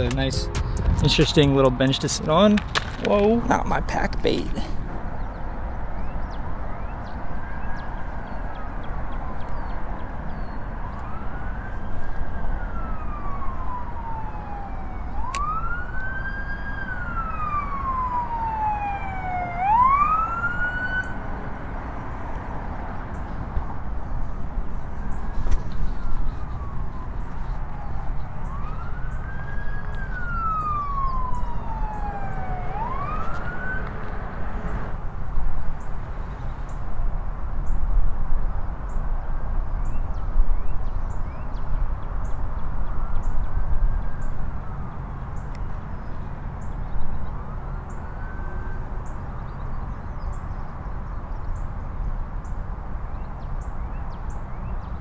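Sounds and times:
low rumble: 0:00.0 - 0:02.7
police sirens wailing: 0:00.0 - 0:03.4, 0:10.8 - 0:22.4, 0:25.1 - 0:34.9, 0:42.8 - 0:49.5.

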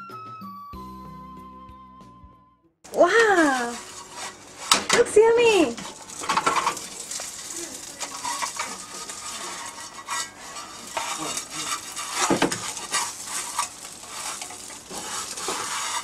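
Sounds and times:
oil sizzling in a frying pan: 0:02.9 - 0:16.0.

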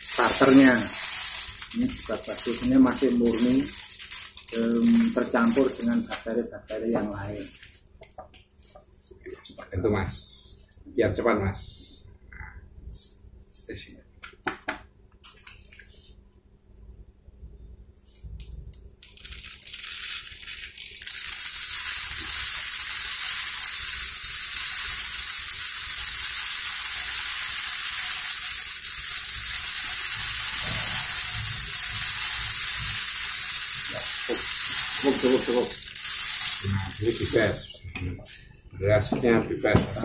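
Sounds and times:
rice grains pouring into bottle: 0:00.0 - 0:06.1, 0:19.0 - 0:37.7.

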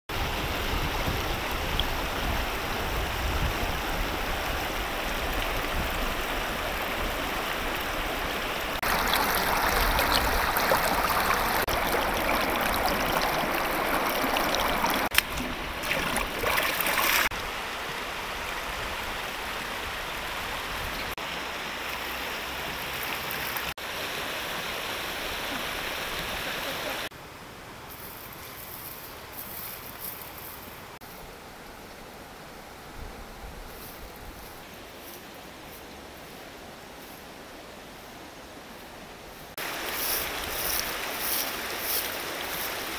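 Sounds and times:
river water rushing: 0:00.1 - 0:27.6, 0:38.5 - 0:42.9
fish splashing: 0:08.8 - 0:17.3.

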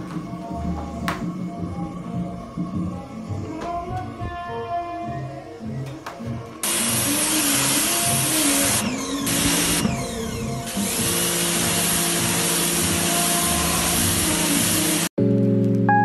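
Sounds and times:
pressure washer spray hiss: 0:06.6 - 0:09.8, 0:11.3 - 0:15.1.

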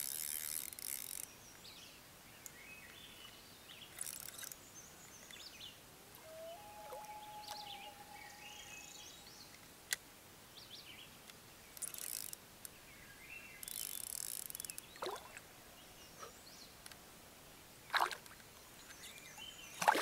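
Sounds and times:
birds chirping and trilling: 0:04.0 - 0:09.6.

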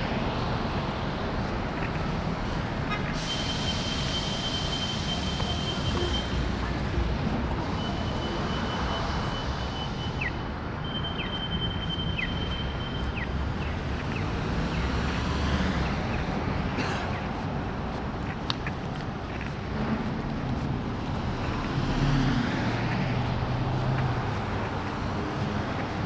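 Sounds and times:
street traffic: 0:00.0 - 0:26.0
crossing signal chirps: 0:03.2 - 0:06.6, 0:07.6 - 0:13.4.

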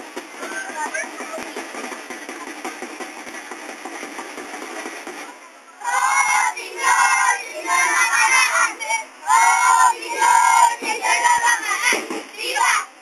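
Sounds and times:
crowd: 0:00.0 - 0:13.0
young women chanting in unison: 0:05.8 - 0:13.0.

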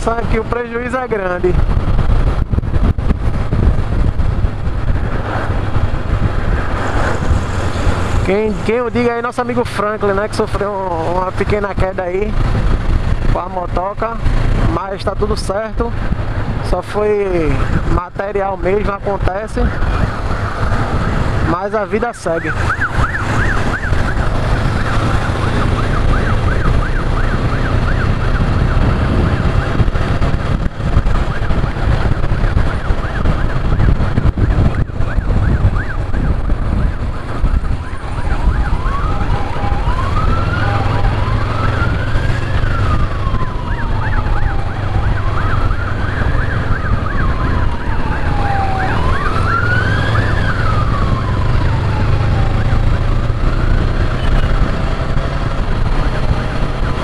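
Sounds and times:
wind noise: 0:00.0 - 0:57.0
ambulance siren: 0:19.2 - 0:56.0
motorcycle engine: 0:22.4 - 0:57.0.

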